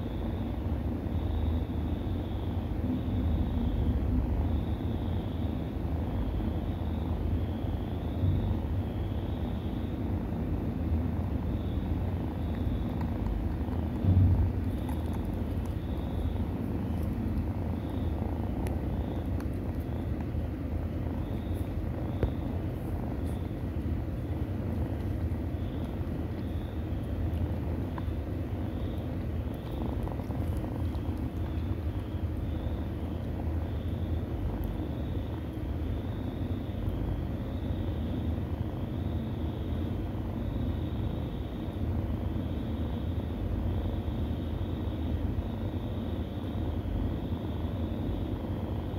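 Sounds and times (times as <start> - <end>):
cat purring: 11.2 - 36.0.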